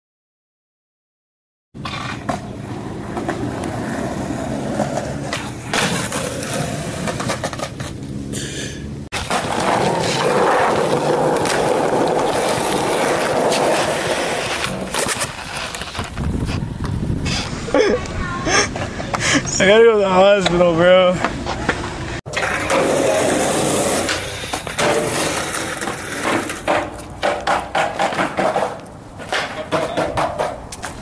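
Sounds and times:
skateboard clacks: 1.8s - 8.0s, 9.2s - 17.0s, 21.2s - 31.0s
skateboard wheels rolling on pavement: 1.8s - 31.0s.

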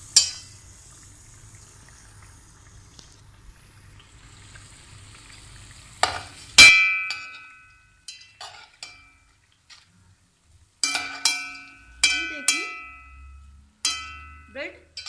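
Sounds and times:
frying hiss: 0.0s - 15.0s
metal spoon clinking on pan: 0.2s - 0.5s, 6.0s - 9.3s, 10.8s - 15.0s.

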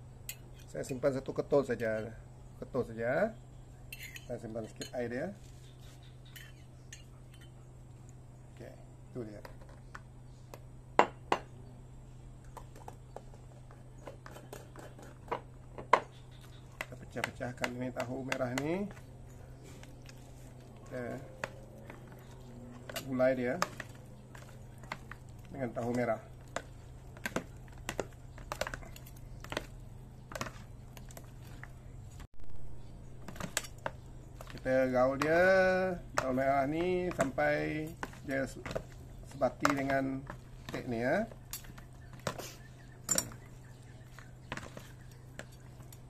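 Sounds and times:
metal spoon clinking against glass jar: 3.9s - 4.9s.

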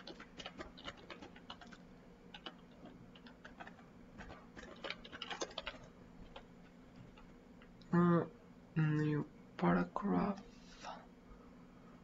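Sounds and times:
light keyboard typing: 0.0s - 7.3s.

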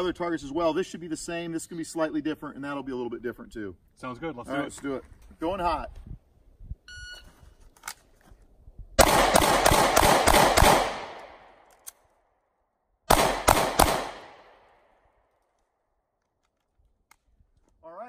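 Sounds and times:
handgun shots: 9.0s - 11.3s, 13.1s - 14.5s.

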